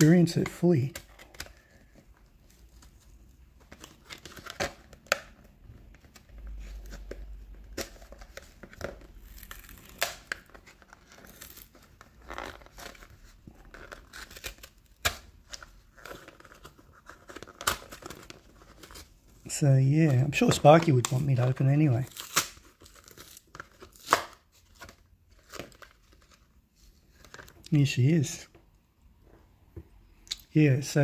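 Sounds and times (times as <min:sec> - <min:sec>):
blister pack torn open: 0:06.1 - 0:19.1, 0:20.4 - 0:24.5.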